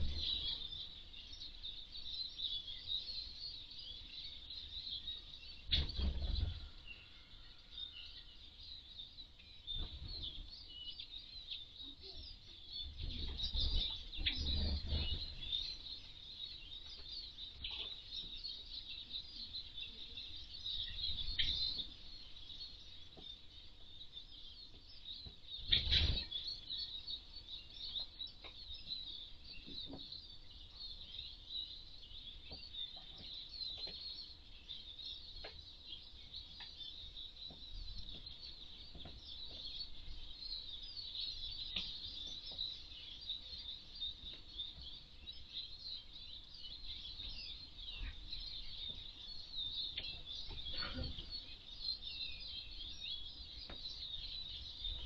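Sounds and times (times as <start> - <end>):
small birds twittering: 0.0 - 55.0.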